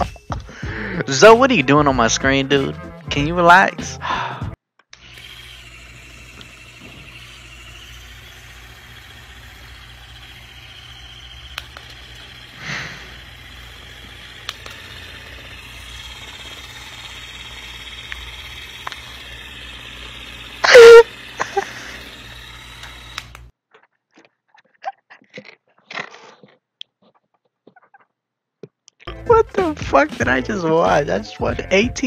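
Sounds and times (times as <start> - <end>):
small electric motor whirring: 5.0 - 23.5.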